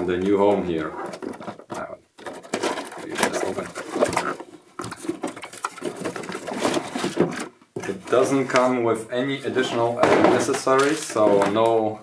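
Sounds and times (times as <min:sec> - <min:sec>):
cardboard box rustling and scraping: 0:00.8 - 0:08.7.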